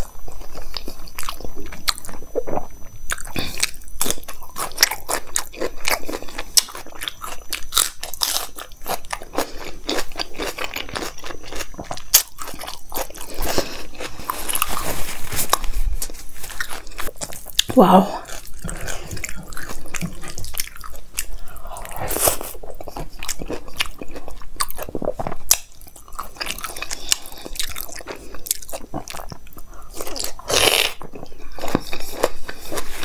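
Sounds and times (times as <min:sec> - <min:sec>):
person chewing food: 0:00.0 - 0:33.0.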